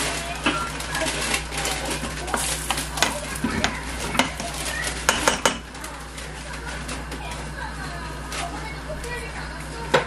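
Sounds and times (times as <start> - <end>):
spatula scraping and knocking pot: 2.0 - 5.7.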